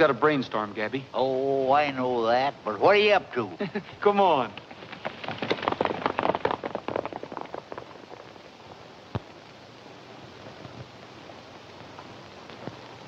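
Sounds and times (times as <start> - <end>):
faint steady hiss: 0.0 - 13.0
horses galloping hoofbeats: 4.0 - 9.5.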